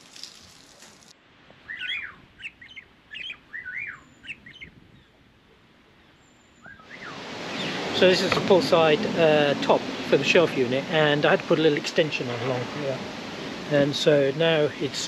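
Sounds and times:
songbird singing: 1.5 - 5.3, 6.0 - 8.9.

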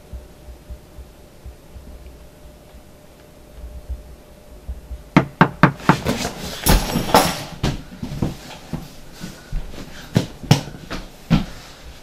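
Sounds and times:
knocks and thumps: 4.7 - 8.9.

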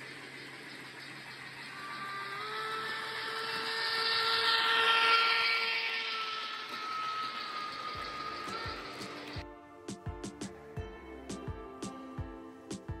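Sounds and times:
model train motor whining: 0.0 - 9.4
wheels hissing on rails: 0.0 - 9.4.

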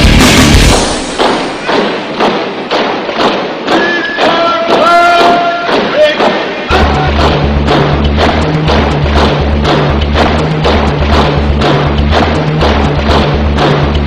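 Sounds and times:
heavy bass line: 0.0 - 1.8, 4.7 - 14.0
percussive beat: 0.0 - 14.0.

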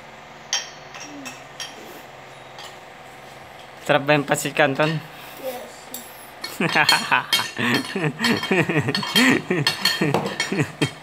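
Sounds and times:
cutlery clinking on plate: 6.0 - 10.6.

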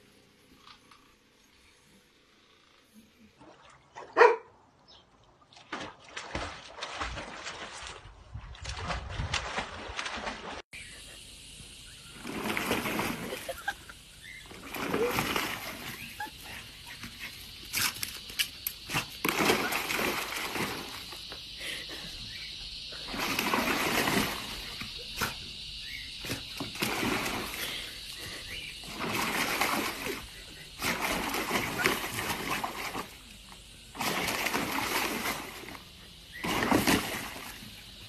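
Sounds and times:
dog splashing in water: 5.4 - 10.6, 12.1 - 21.3, 23.0 - 37.8.

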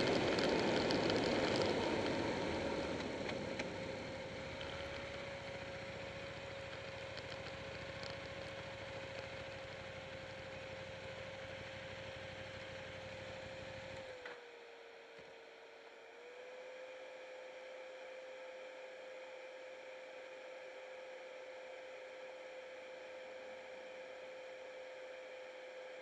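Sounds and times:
motorcycle engine idling: 0.0 - 14.0
steady hum: 0.0 - 14.2.

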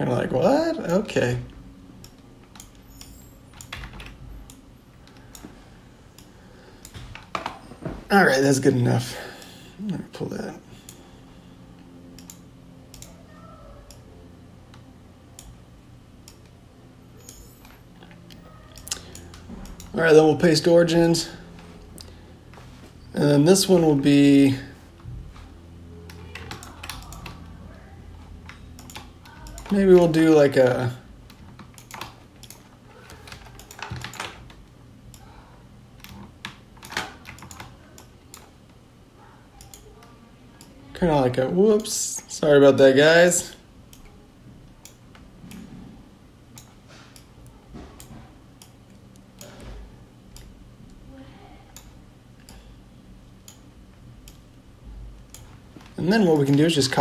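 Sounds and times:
faint low hum: 0.0 - 57.0
computer mouse clicks: 2.0 - 5.5, 12.1 - 13.2, 31.3 - 35.3, 39.6 - 40.7.

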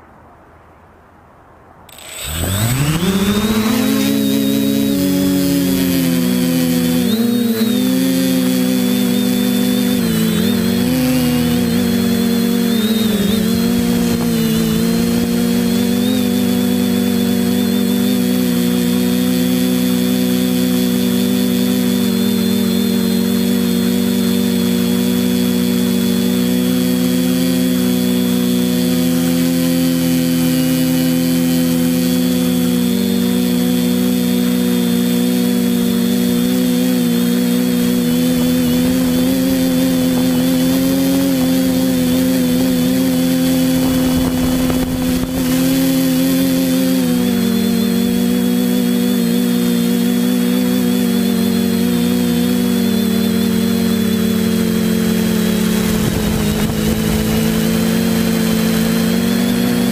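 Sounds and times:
drone propellers droning: 1.9 - 59.9.

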